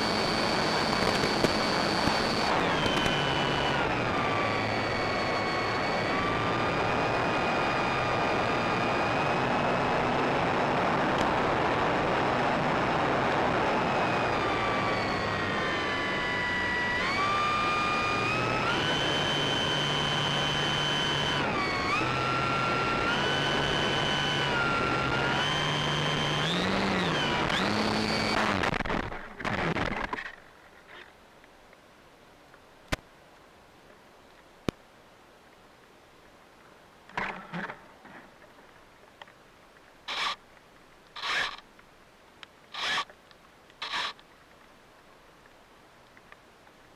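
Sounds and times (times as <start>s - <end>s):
model plane motor whining: 0.0s - 11.4s, 13.2s - 30.4s, 40.1s - 40.4s, 41.2s - 41.6s, 42.7s - 43.1s, 43.8s - 44.2s.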